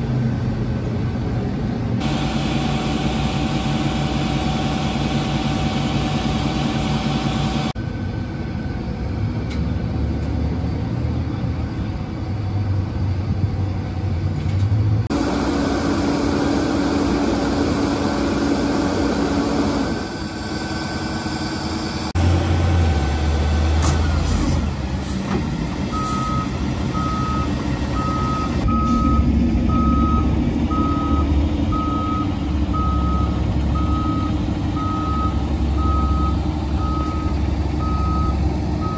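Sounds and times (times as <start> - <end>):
diesel trucks idling: 0.0 - 13.9, 15.1 - 38.9
truck reversing alarm beeping: 17.8 - 22.1, 23.9 - 38.9.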